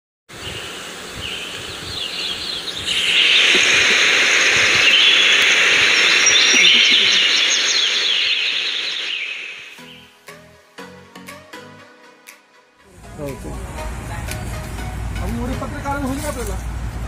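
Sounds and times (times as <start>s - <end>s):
birds chirping and calling: 0.4s - 10.1s.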